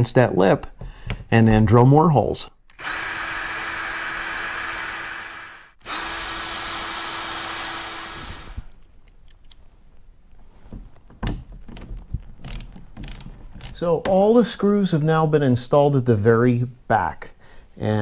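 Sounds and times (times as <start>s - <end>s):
cordless drill boring holes: 2.7s - 8.7s.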